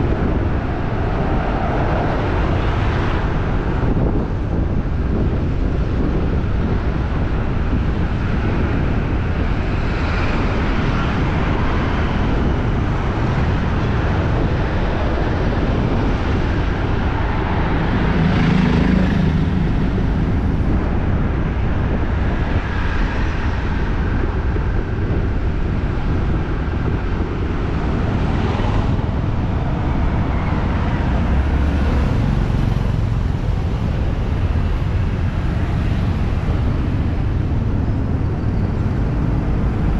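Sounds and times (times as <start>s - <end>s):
traffic rumble: 0.0s - 39.9s
vehicles passing: 0.0s - 39.9s.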